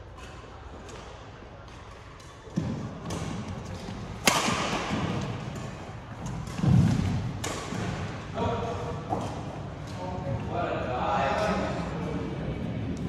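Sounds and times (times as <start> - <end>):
rackets hitting shuttlecock: 0.2 - 8.3.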